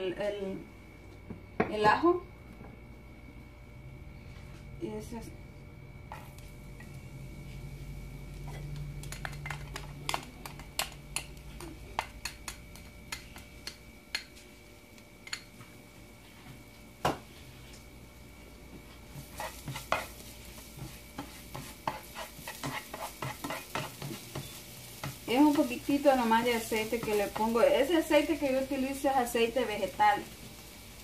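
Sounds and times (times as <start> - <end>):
garlic frying in oil: 6.1 - 16.0, 16.6 - 31.0
tongs moving in pan: 18.9 - 30.7.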